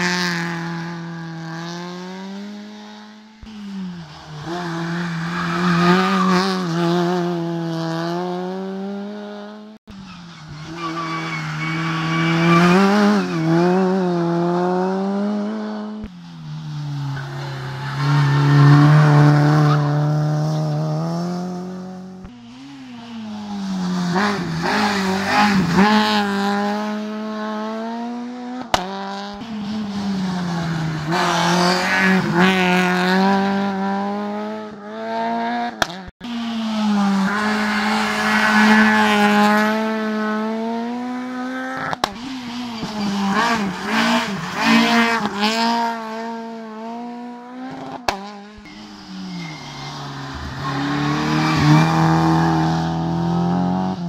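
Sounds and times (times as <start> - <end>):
racing car engines revving: 0.0 - 54.0.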